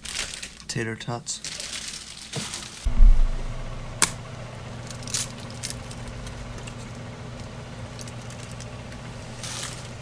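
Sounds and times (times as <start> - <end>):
frozen food crackling in pan: 0.0 - 2.9
steady low hum: 2.9 - 10.0.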